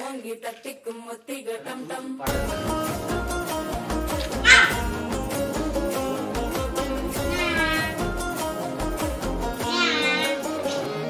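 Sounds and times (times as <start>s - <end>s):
sung film song: 2.2s - 11.0s
instrumental music with heavy bass beat: 2.3s - 10.7s.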